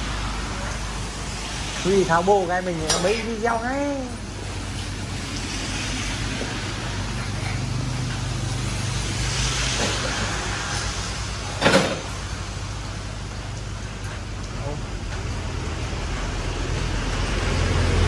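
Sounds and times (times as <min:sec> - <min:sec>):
low mechanical hum: 0:00.0 - 0:18.0
hiss: 0:05.2 - 0:12.1.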